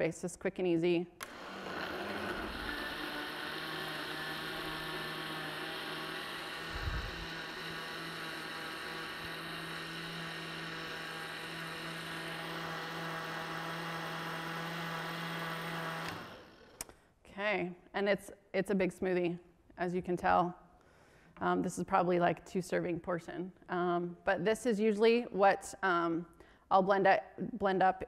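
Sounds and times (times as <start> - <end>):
blender running: 1.2 - 16.9.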